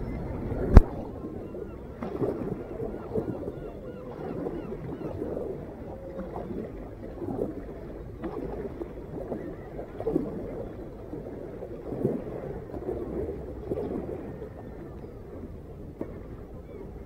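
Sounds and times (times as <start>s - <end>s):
steady low rumble: 0.0s - 1.4s
paddle splashing: 0.0s - 17.0s
water lapping against hull: 0.0s - 17.0s.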